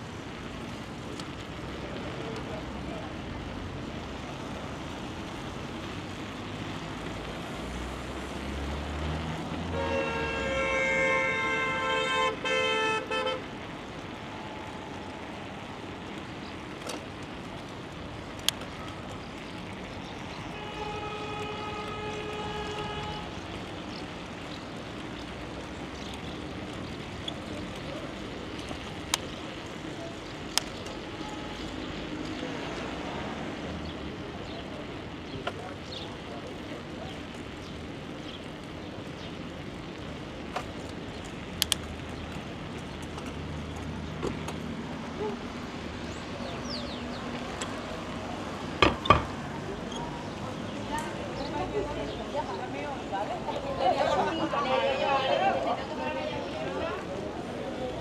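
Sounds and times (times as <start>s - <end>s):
vehicle horn blast: 9.7s - 13.4s, 20.5s - 23.4s
sharp clicks: 41.5s - 42.0s.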